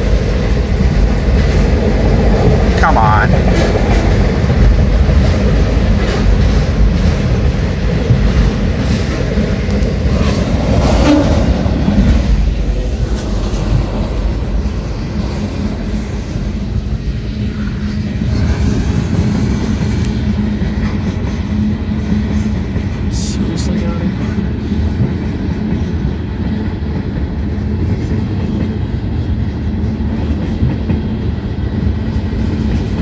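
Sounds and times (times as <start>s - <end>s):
steel wheels rumbling on rails: 0.0s - 33.0s.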